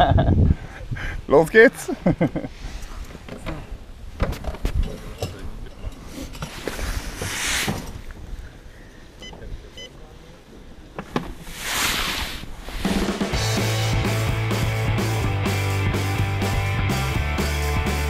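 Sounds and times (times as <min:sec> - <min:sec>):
rushing noise: 0:11.4 - 0:14.7
rock music: 0:12.9 - 0:18.0.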